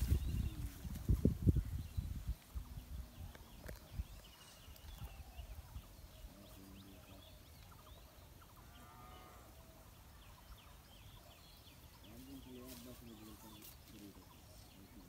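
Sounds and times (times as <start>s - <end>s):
wind rumble on microphone: 0.0s - 6.0s
small birds chirping: 0.0s - 15.0s
poultry calling: 2.5s - 14.9s.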